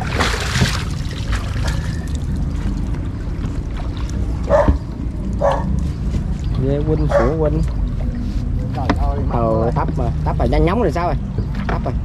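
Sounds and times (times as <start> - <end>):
steady low rumble: 0.0 - 12.0
dog barking: 4.5 - 4.8, 5.4 - 5.7, 7.1 - 7.4.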